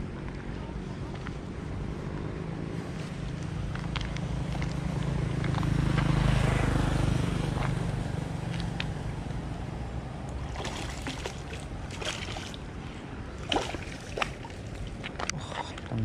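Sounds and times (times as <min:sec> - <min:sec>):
vehicle engine passing: 0:01.6 - 0:11.8
light water splashes: 0:10.1 - 0:15.9.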